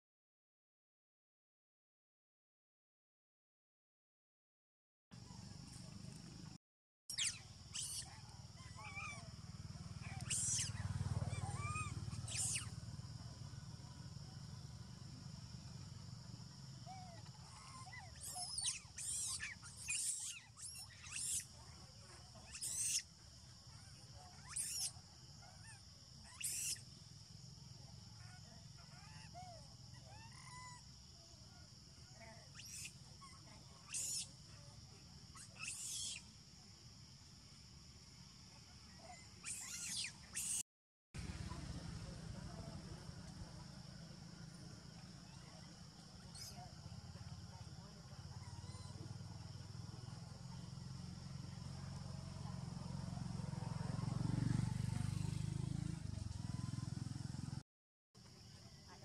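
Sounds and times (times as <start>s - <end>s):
sharp high-pitched animal calls: 7.1s - 9.4s, 10.0s - 12.7s, 16.8s - 21.6s, 22.4s - 23.1s, 23.7s - 25.0s, 25.6s - 26.8s, 32.1s - 34.4s, 35.3s - 36.3s, 39.0s - 40.6s
high buzz of forest ambience: 7.1s - 29.0s, 41.2s - 57.6s.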